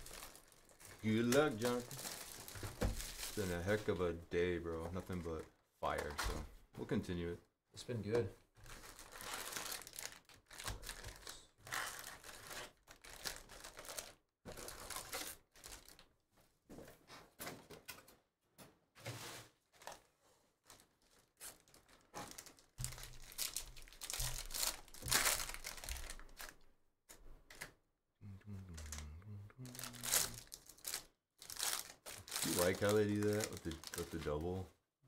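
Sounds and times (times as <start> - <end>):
foil wrappers crinkling and tearing: 0.0 - 3.8, 8.6 - 16.1, 20.7 - 26.6, 29.7 - 34.6.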